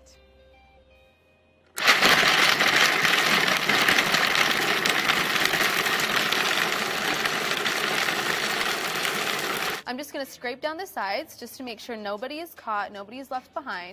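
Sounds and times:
food processor grinding nuts: 0:01.8 - 0:09.8.

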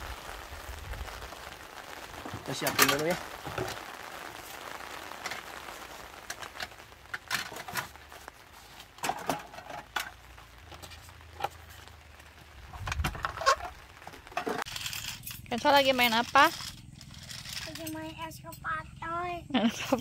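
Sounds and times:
rain pattering on a tent: 0:00.0 - 0:20.0.

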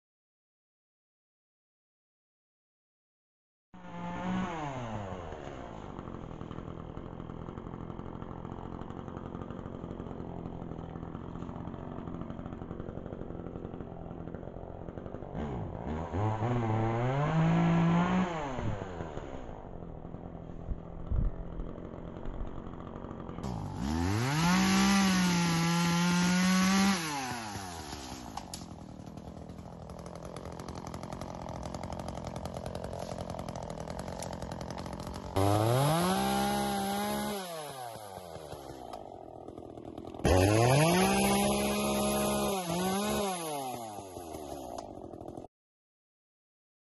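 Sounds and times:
chainsaw revving: 0:03.8 - 0:45.5.

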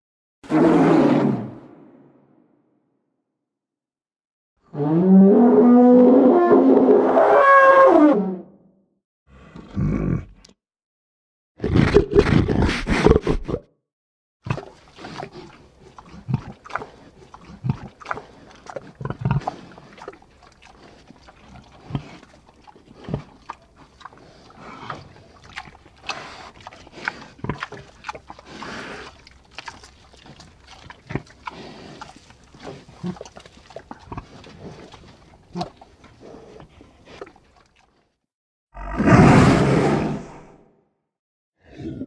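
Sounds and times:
large animal grunting and growling: 0:09.3 - 0:10.6, 0:41.6 - 0:42.0.

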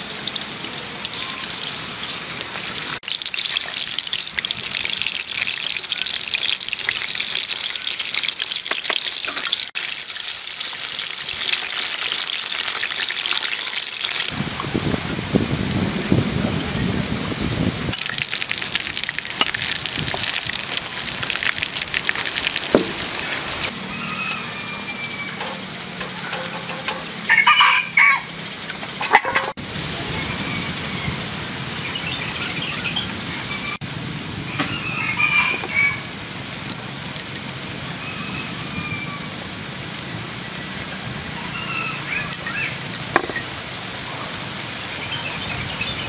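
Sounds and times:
outdoor background noise: 0:00.0 - 0:46.0
rooster crowing: 0:23.7 - 0:25.6, 0:27.3 - 0:28.4, 0:34.5 - 0:36.2, 0:37.8 - 0:39.4.

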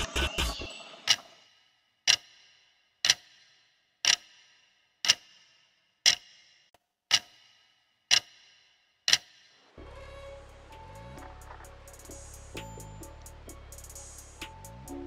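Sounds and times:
backing music: 0:00.0 - 0:01.0, 0:09.8 - 0:15.0
clock tick sound effect: 0:00.0 - 0:02.4, 0:03.0 - 0:03.4, 0:04.0 - 0:04.4, 0:05.0 - 0:05.4, 0:06.0 - 0:06.4, 0:07.1 - 0:08.5, 0:09.1 - 0:09.4.

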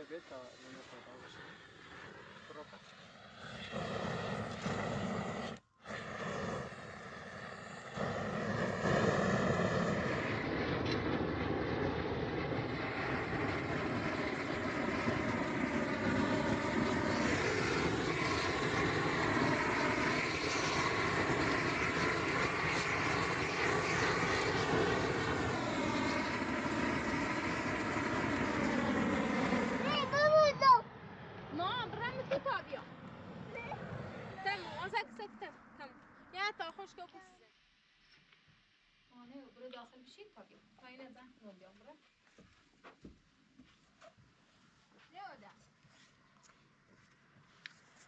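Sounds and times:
motor drone: 0:00.0 - 0:35.0.

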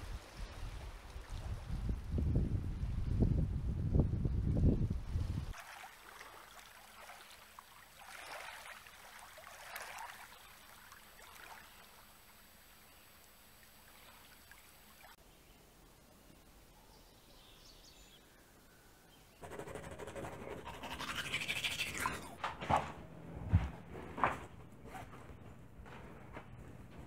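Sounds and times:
small waves lapping: 0:05.5 - 0:15.2.

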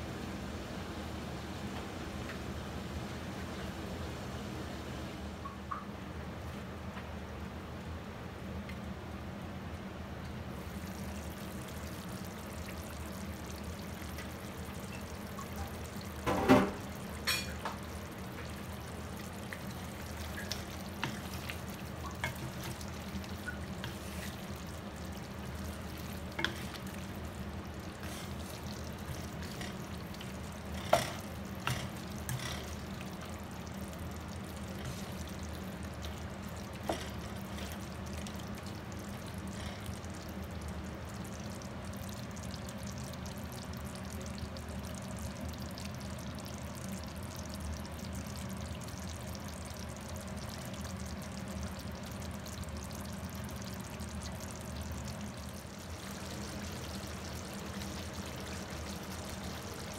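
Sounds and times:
sauce simmering and sizzling: 0:09.8 - 0:59.9.

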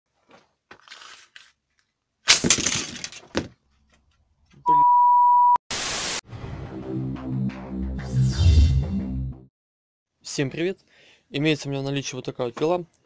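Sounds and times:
steady beep: 0:04.7 - 0:05.6
static hiss burst: 0:05.7 - 0:06.2.

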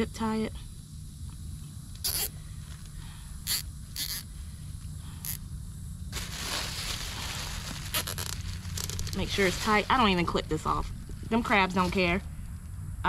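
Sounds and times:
zip tie rasping zip: 0:02.0 - 0:02.3, 0:03.5 - 0:04.2, 0:07.9 - 0:09.0
zip tie ratchet clicks: 0:02.0 - 0:02.3, 0:03.4 - 0:04.3.

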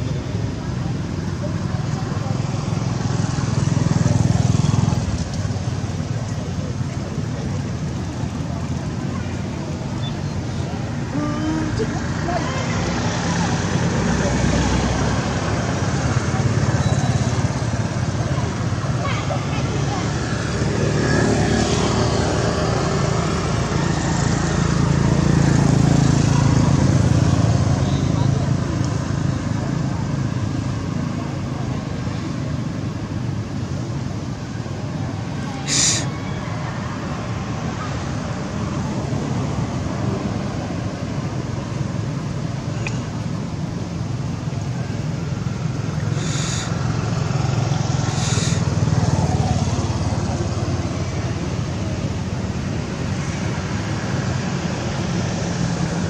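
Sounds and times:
engine low rumble: 0:00.0 - 0:56.0
high hissing: 0:35.6 - 0:36.2, 0:46.1 - 0:46.9, 0:48.1 - 0:48.7
motor engine running: 0:46.1 - 0:49.5.

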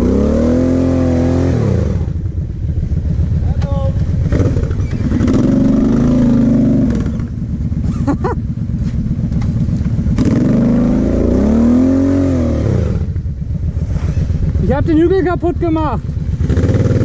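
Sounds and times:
quad bike engine revving: 0:00.0 - 0:17.0.

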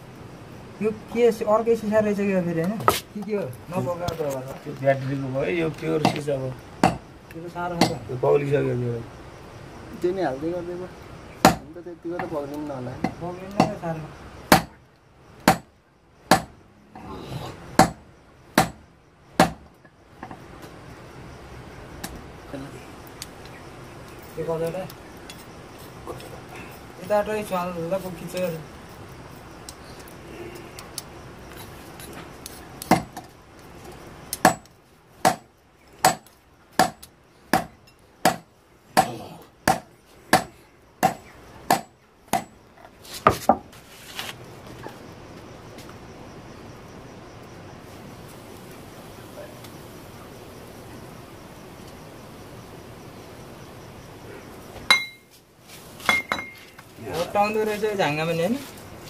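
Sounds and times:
sharp knocks with metallic ring: 0:06.0 - 0:07.1, 0:07.8 - 0:08.1, 0:11.4 - 0:12.4, 0:13.0 - 0:13.8, 0:14.5 - 0:14.8, 0:15.4 - 0:15.7, 0:16.3 - 0:16.6, 0:17.8 - 0:20.4, 0:34.4 - 0:42.6, 0:54.9 - 0:55.3, 0:56.0 - 0:56.7.

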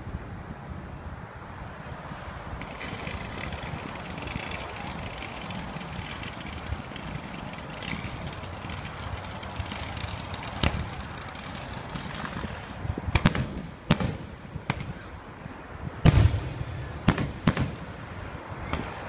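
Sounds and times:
fireworks crackling: 0:02.3 - 0:15.0, 0:16.0 - 0:19.0
firework shell bursts: 0:02.6 - 0:14.9.

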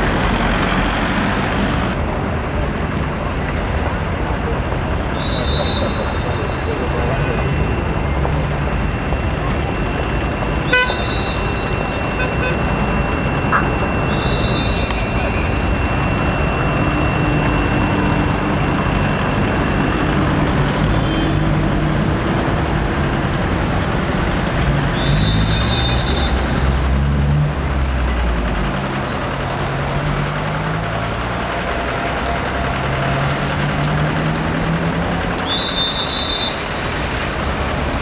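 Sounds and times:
bus engine: 0:00.0 - 0:38.0
road noise: 0:00.0 - 0:38.0
short high beep: 0:09.7 - 0:18.5.

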